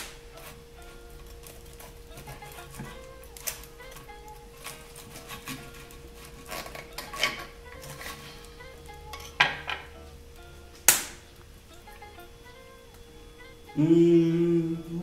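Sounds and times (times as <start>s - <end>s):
knife cutting crispy pork: 0.0s - 8.3s
knife scraping on wooden board: 0.3s - 8.5s.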